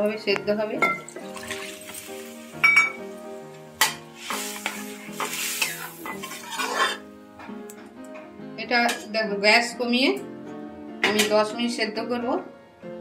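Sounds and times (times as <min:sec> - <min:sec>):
water pouring into pan: 0:01.0 - 0:03.1, 0:04.1 - 0:07.0.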